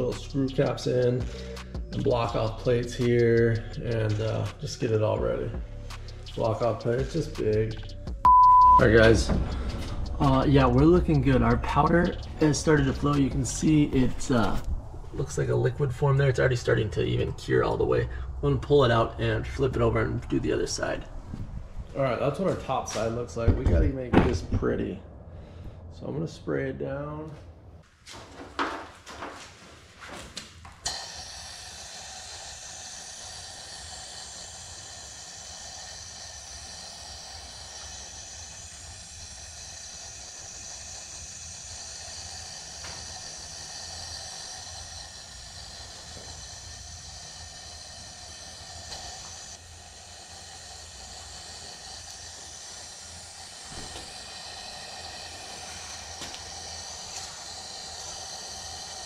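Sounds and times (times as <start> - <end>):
compressed air hissing from spray gun: 0.6 - 8.0, 9.0 - 14.7, 30.8 - 59.0.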